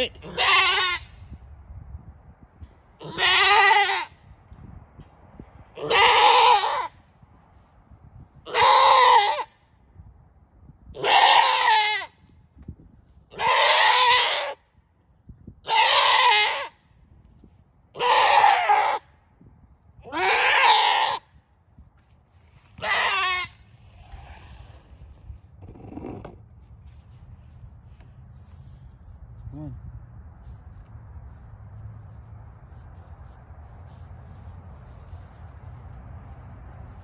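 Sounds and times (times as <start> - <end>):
goat bleating loudly: 0.1 - 1.2, 3.0 - 4.2, 5.8 - 6.9, 8.4 - 9.6, 11.0 - 12.2, 13.3 - 14.6, 15.6 - 16.8, 18.0 - 19.0, 20.0 - 21.3, 22.8 - 23.6.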